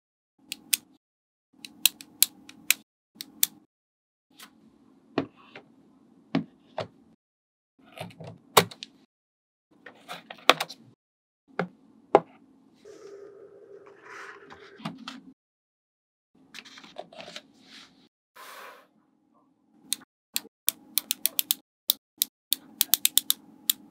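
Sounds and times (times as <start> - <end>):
magnetic balls clicking together: 20.4 - 23.9.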